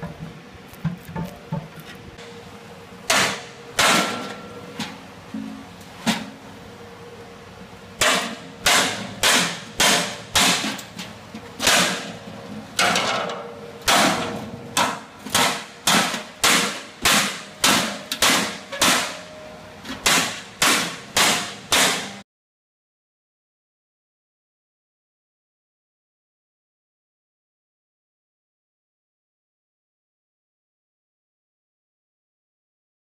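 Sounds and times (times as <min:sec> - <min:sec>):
hammer striking sheet metal: 0:03.1 - 0:06.3, 0:08.0 - 0:10.9, 0:11.6 - 0:12.2, 0:12.8 - 0:22.2.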